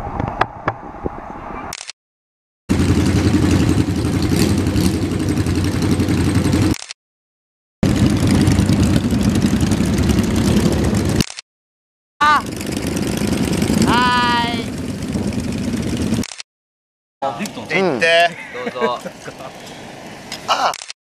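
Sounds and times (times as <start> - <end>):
motorcycle engines running: 2.7 - 6.8, 7.8 - 11.2, 12.2 - 16.2.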